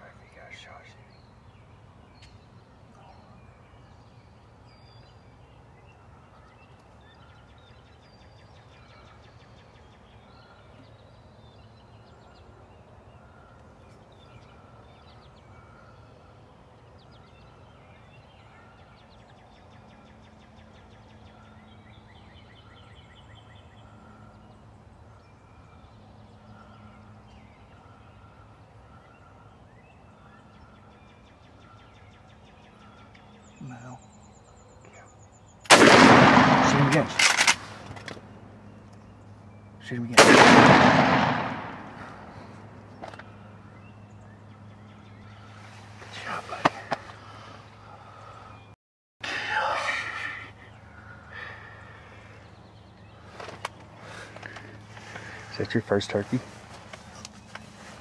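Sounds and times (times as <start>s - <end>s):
songbirds trilling and chirping: 0.0s - 58.0s
wild turkey calling: 49.3s - 55.8s.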